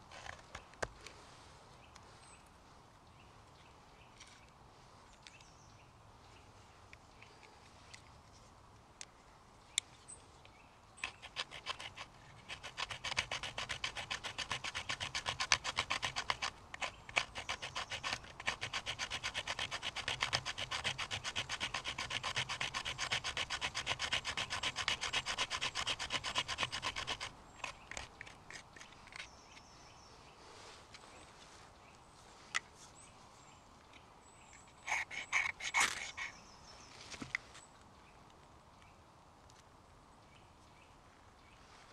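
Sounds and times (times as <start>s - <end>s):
knife blade scraping wood: 11.0s - 29.7s, 34.6s - 36.4s.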